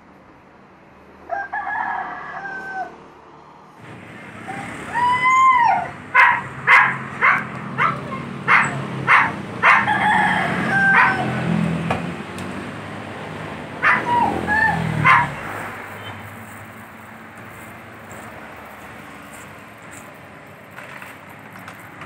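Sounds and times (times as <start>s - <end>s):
rooster crowing: 1.2s - 3.2s, 4.4s - 11.6s.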